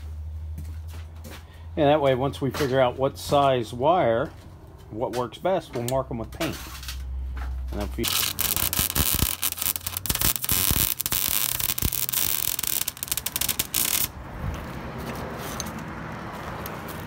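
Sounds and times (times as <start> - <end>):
welder arc crackling: 7.8 - 14.2.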